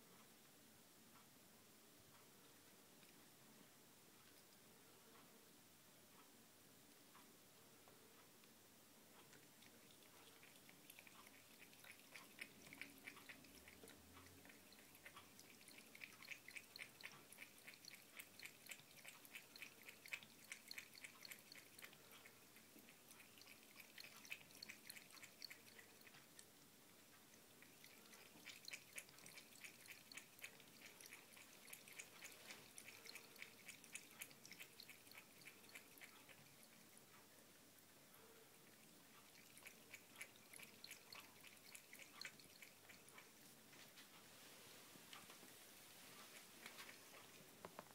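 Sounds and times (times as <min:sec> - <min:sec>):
cat lapping water: 0:09.0 - 0:44.0, 0:45.1 - 0:47.9.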